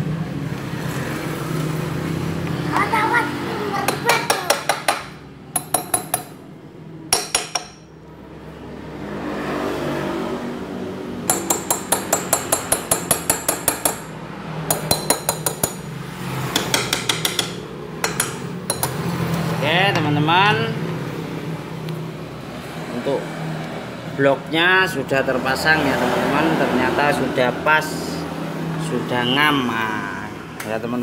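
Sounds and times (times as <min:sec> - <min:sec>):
hammer tapping metal: 0:03.9 - 0:06.4, 0:07.1 - 0:07.9, 0:11.2 - 0:15.9, 0:16.5 - 0:19.1.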